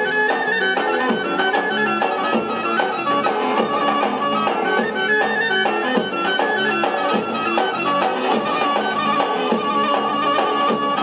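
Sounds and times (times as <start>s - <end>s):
folk dance music: 0.0s - 11.0s.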